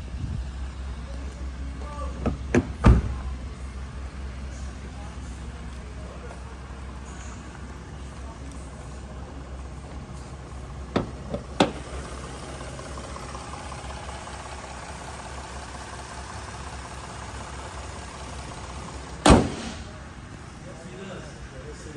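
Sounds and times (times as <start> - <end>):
steady low hum: 0.0 - 21.9
hood slammed shut: 2.2 - 3.3, 10.9 - 11.8, 19.2 - 20.0
hood latch clicks and knocks: 10.9 - 11.8.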